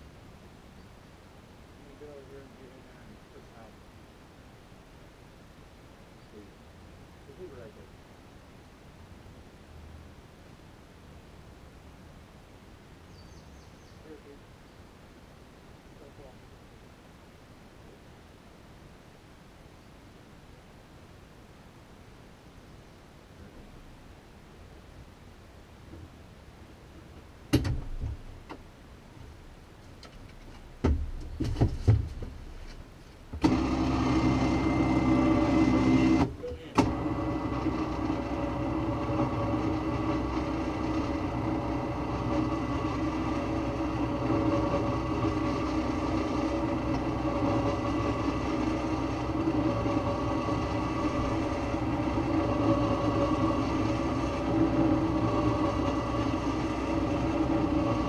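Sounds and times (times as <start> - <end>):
knocks and thumps: 27.0 - 28.6, 30.0 - 33.6
motor running with whine: 33.4 - 58.0.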